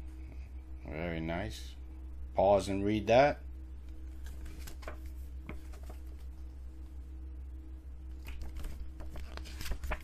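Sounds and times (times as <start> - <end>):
steady low hum: 0.0 - 10.0
paper rustling: 4.1 - 6.3, 8.2 - 10.0.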